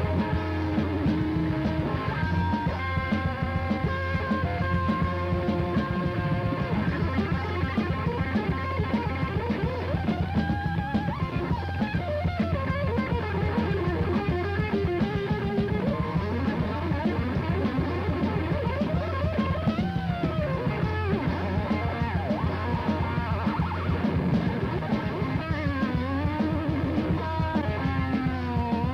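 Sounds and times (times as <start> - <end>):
electric guitar bending notes: 0.0 - 28.9
heavy metal band playing live: 0.0 - 28.9.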